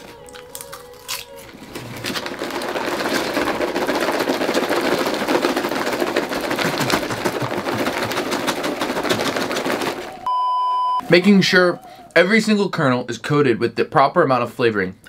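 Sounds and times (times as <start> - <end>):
paper popcorn bag rustling: 0.0 - 10.3.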